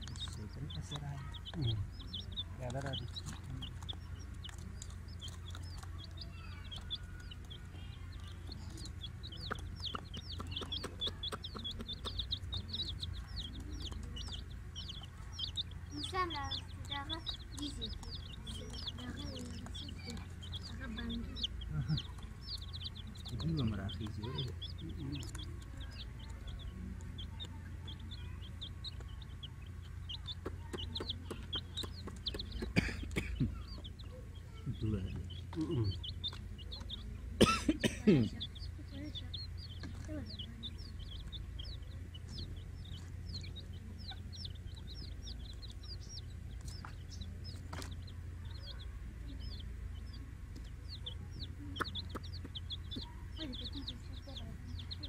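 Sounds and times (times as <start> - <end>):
chicks peeping: 0.0 - 55.0
steady low rumble: 0.0 - 55.0.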